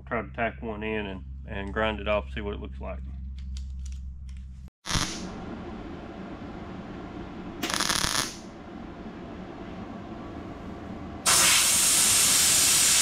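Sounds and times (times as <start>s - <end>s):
mig welder tack welding: 4.9s - 5.4s, 7.6s - 8.5s.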